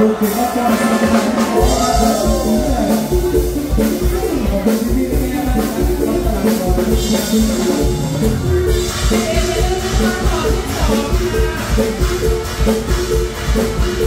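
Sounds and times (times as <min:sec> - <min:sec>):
live band music over pa: 0:00.0 - 0:14.0
steady drum beat: 0:00.0 - 0:14.0
man singing: 0:04.3 - 0:08.0, 0:09.1 - 0:12.2.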